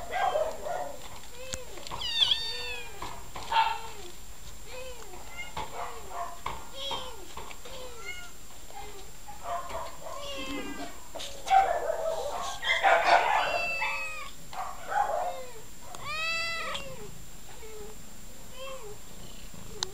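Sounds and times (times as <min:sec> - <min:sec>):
cats meowing: 0:01.3 - 0:04.1, 0:04.7 - 0:06.1, 0:06.7 - 0:09.1, 0:09.8 - 0:11.0, 0:12.8 - 0:14.4, 0:15.2 - 0:19.0.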